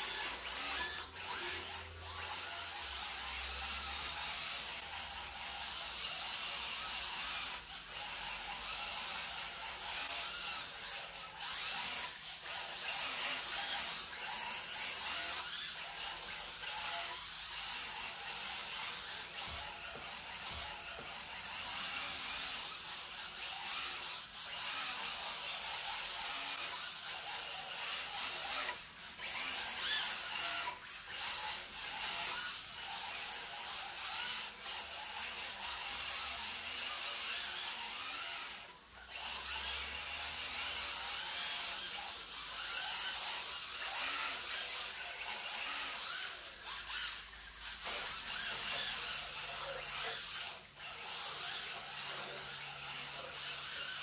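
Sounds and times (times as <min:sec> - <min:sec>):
electric rc car motor whining: 0:00.0 - 0:54.0.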